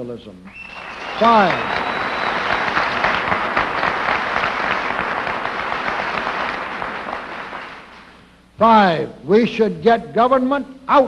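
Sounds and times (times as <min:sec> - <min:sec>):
audience applauding: 0:00.5 - 0:08.2.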